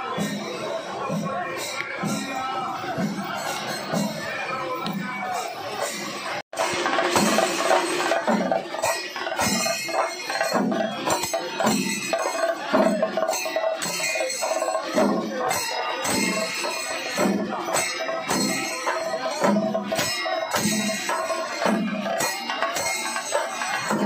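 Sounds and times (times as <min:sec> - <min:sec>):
cymbals and bells clashing: 0:00.0 - 0:24.0.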